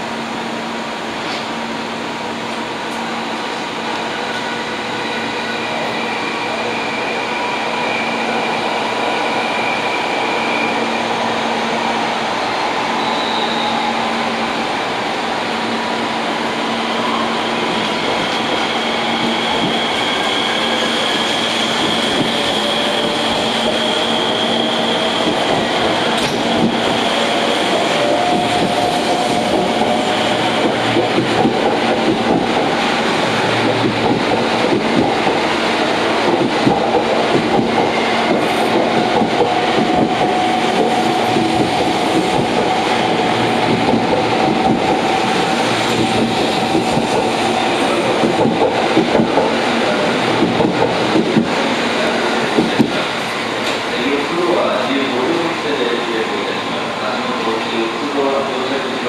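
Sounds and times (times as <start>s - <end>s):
train running noise: 0.0s - 59.0s
train wheels clacking: 17.7s - 56.3s.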